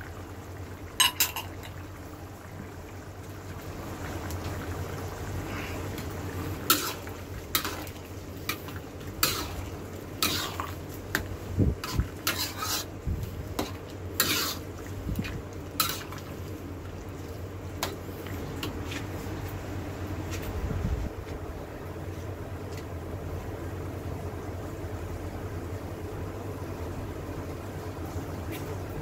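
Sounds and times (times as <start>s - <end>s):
steady low hum: 0.0s - 29.0s
metal ladle scraping a wok: 6.6s - 7.9s, 9.2s - 9.6s, 10.2s - 10.8s, 11.8s - 13.0s, 13.6s - 14.7s, 15.8s - 16.2s.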